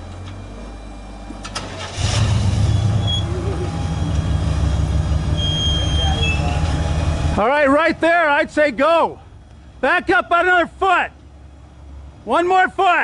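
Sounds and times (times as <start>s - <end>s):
buggy engine revving: 1.5s - 8.4s.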